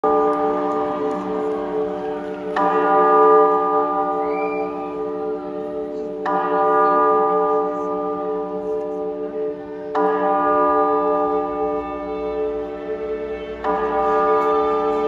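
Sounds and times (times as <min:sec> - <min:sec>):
bell-like chord ringing: 0:00.0 - 0:06.1, 0:10.3 - 0:15.0.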